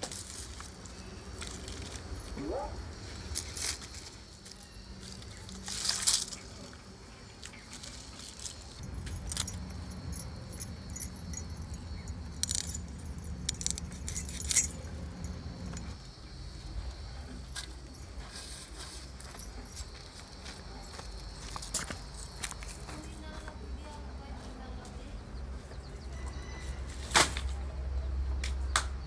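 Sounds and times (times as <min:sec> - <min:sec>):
firewood sticks clattering: 0:07.4 - 0:16.0.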